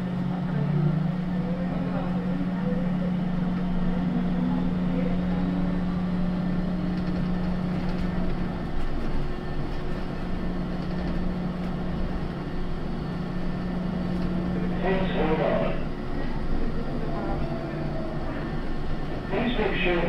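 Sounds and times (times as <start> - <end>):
steady electric hum: 0.0 - 20.0
train running rumble: 0.0 - 20.0.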